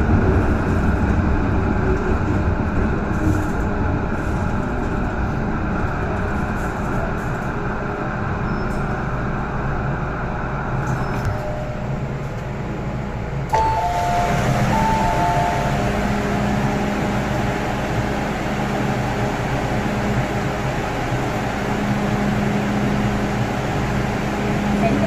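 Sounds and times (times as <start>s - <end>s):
electric train humming: 11.5s - 25.0s
two-tone electronic door chime: 13.6s - 16.6s.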